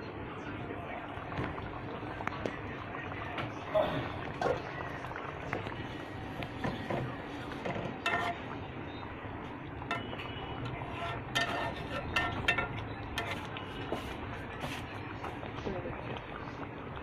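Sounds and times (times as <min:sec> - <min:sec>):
spatula clinking against pan: 0:08.0 - 0:08.4, 0:09.9 - 0:10.3, 0:11.0 - 0:13.5.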